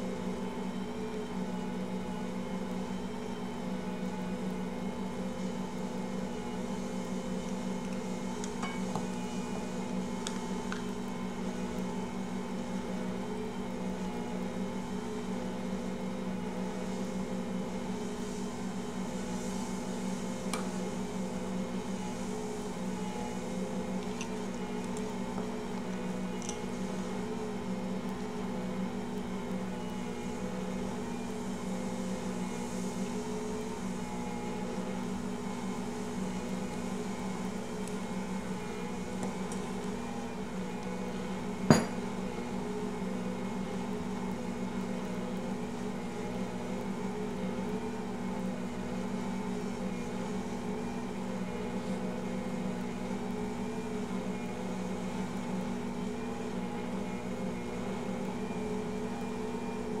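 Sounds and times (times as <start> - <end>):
ringing clink against steel bowl: 41.7 - 42.0.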